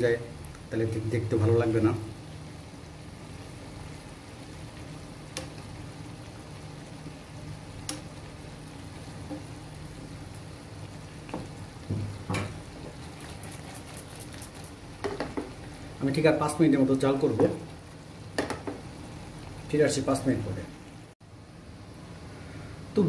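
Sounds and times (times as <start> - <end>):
curry simmering with low sizzle: 0.0 - 23.0.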